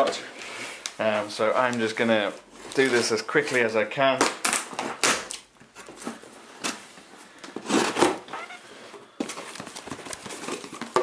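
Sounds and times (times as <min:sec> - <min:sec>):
cardboard rustling: 0:05.7 - 0:11.0.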